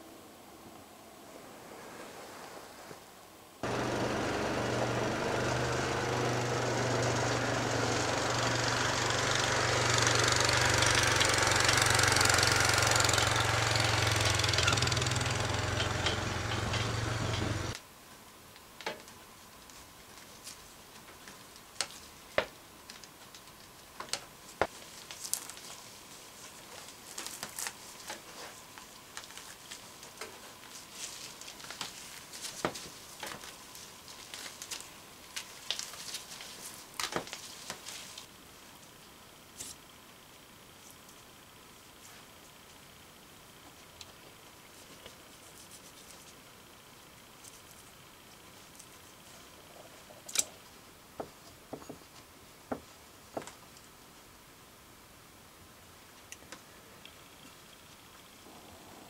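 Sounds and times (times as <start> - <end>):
small engine running: 3.6 - 17.8.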